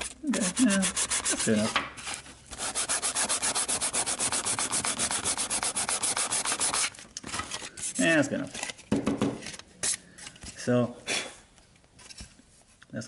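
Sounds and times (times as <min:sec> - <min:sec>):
sandpaper rubbing on plastic: 0:00.0 - 0:07.0.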